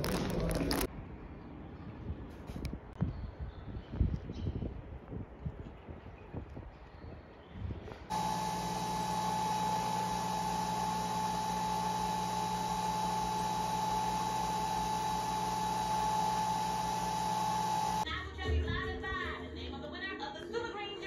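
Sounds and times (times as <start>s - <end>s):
coffee machine whirring: 8.1s - 18.0s
high-pitched machine tone: 8.1s - 18.0s.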